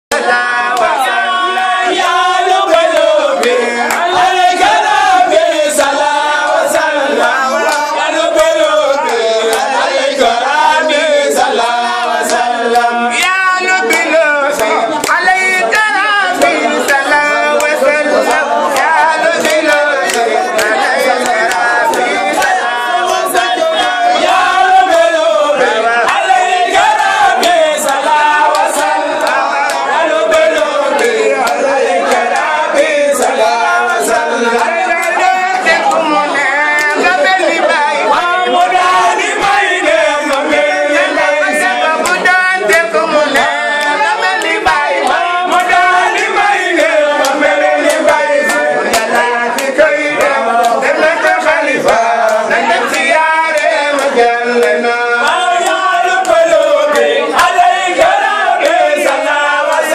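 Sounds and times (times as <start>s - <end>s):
group of voices chanting: 0.1s - 59.9s.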